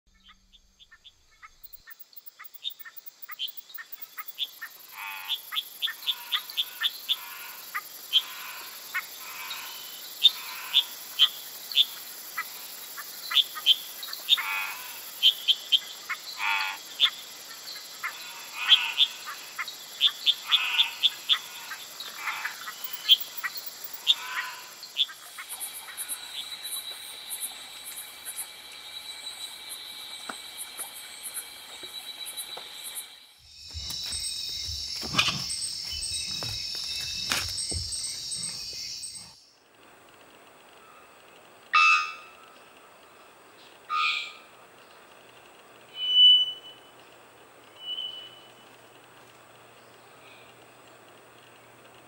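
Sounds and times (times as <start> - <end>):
frogs calling: 0.1 - 39.5, 40.6 - 43.2, 43.8 - 44.7
high insect hiss: 0.2 - 41.5
high insect buzzing: 18.0 - 39.4.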